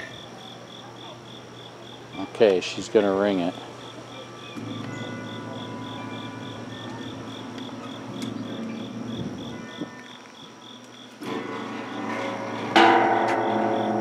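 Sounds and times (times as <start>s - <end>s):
insect chirping: 0.0s - 14.0s
large metal wind chime ringing: 4.7s - 8.1s, 11.6s - 14.0s.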